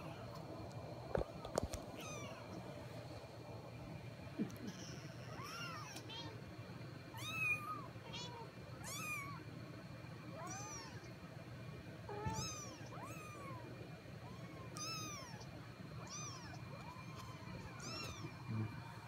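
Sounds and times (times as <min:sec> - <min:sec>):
kittens mewing: 0:04.4 - 0:06.4, 0:07.1 - 0:09.4, 0:10.4 - 0:11.1, 0:12.1 - 0:19.0.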